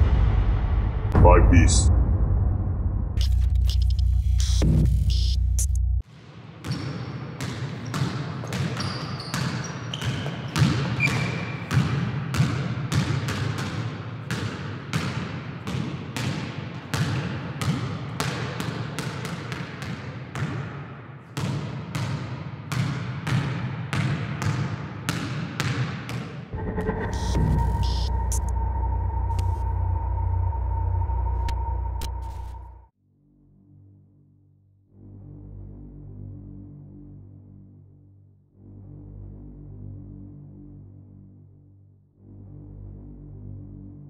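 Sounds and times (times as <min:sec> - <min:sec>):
basketball bouncing on wood floor: 0:06.6 - 0:20.6
shoe squeaks: 0:07.8 - 0:11.7.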